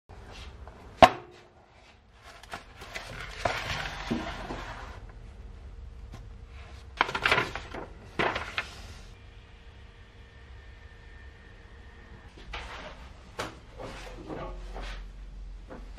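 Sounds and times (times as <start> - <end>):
paper rustling: 2.1 - 5.0, 6.1 - 9.1
page flips: 2.2 - 4.7, 6.9 - 9.0.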